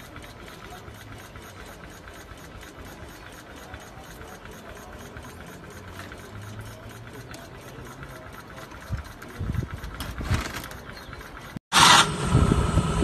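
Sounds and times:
small engine ticking: 0:00.0 - 0:11.6
low hum: 0:11.8 - 0:13.0.

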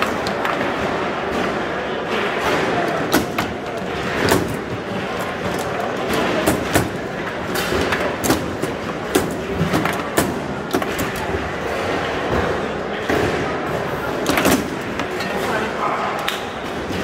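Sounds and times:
foosball ball cracking: 0:02.4 - 0:11.5.

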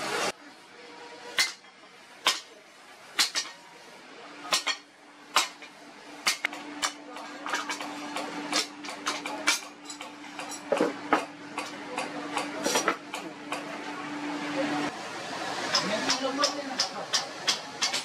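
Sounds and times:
hammer tapping metal blade: 0:15.7 - 0:18.0.

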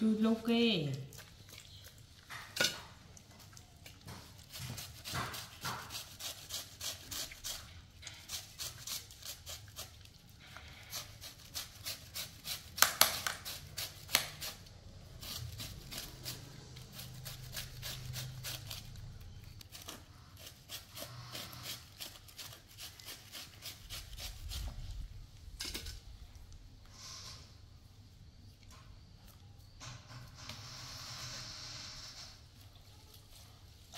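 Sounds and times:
peeler scraping vegetable: 0:04.0 - 0:25.0.

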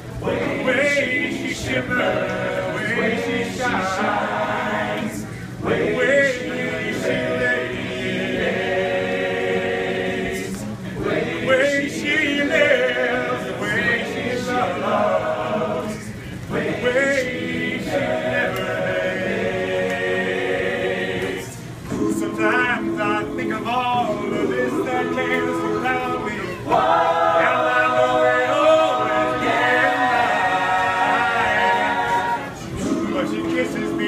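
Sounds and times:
male a cappella group singing: 0:00.0 - 0:34.0.

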